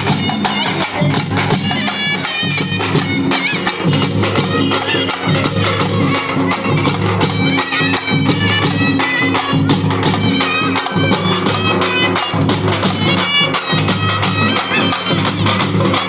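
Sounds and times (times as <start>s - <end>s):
frame drums beaten with sticks: 0.0s - 16.0s
reedy wind instrument melody: 0.0s - 16.0s.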